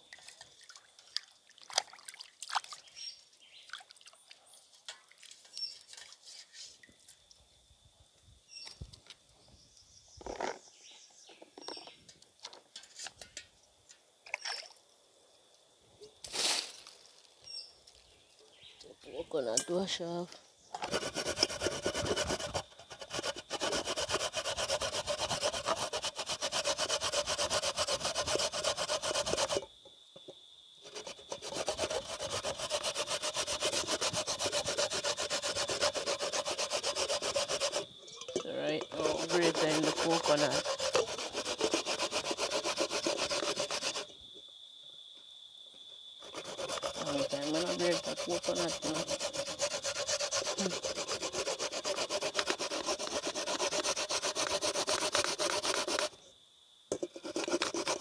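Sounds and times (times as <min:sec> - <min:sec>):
food grated on metal grater: 0:20.8 - 0:29.6, 0:30.9 - 0:37.9, 0:38.9 - 0:44.1, 0:46.3 - 0:56.2, 0:57.0 - 0:58.0.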